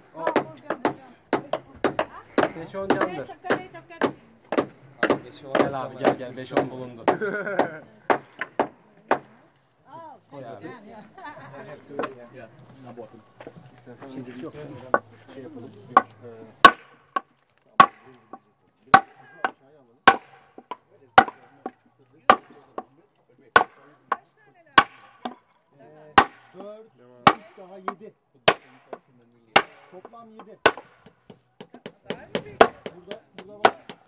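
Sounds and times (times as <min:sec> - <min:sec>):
hammer knocking on wooden block: 0:00.2 - 0:09.3, 0:16.0 - 0:22.9, 0:29.6 - 0:34.0.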